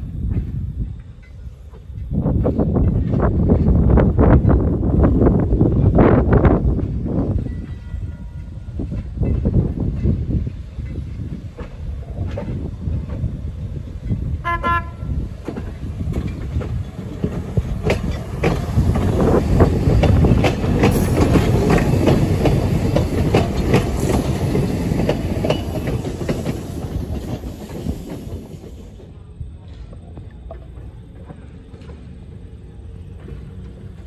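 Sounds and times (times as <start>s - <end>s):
train wheels clicking over rail joints: 0.0s - 34.0s
train horn toot: 14.4s - 15.2s.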